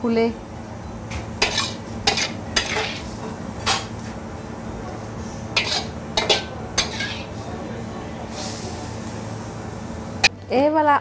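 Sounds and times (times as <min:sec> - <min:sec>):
low kitchen hum: 0:00.0 - 0:11.0
metal spatula clanking on wok: 0:01.4 - 0:03.9, 0:05.6 - 0:07.4.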